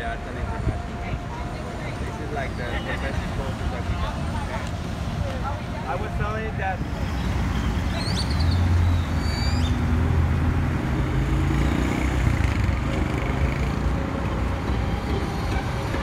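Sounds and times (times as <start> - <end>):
steady traffic noise: 0.0 - 16.0
vehicle engine passing by: 6.9 - 15.7.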